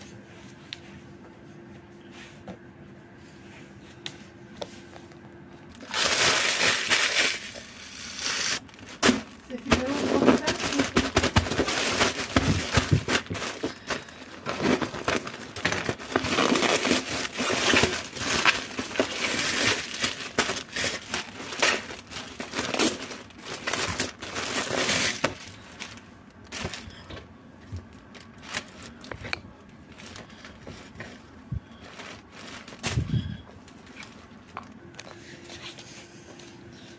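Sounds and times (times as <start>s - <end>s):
plastic packaging crinkling: 5.7s - 27.1s, 27.7s - 34.8s.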